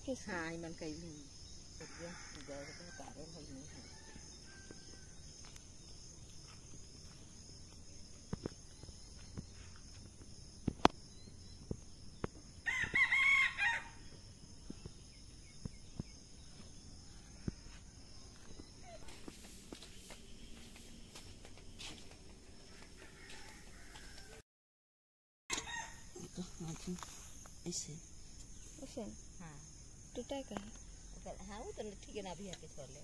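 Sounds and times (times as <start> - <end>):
rooster crowing: 1.8 - 5.3, 12.6 - 14.1, 22.6 - 24.4, 25.5 - 26.2.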